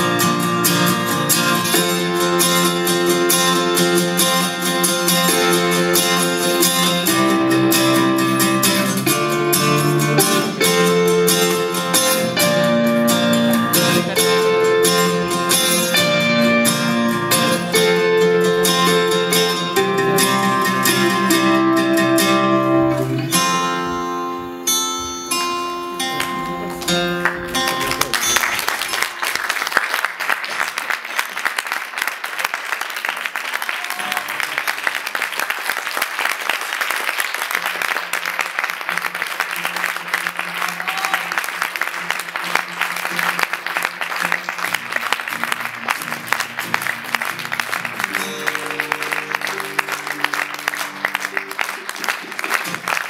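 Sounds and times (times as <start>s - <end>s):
guitar music: 0.0s - 29.1s, 41.6s - 53.0s
audience applause: 2.6s - 23.8s, 26.1s - 53.0s.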